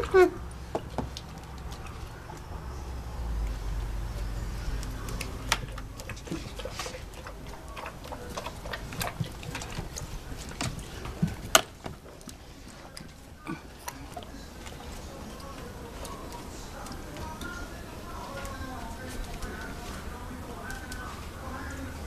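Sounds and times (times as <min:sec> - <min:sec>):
dog clicking and tapping in bowl: 0:04.7 - 0:22.0.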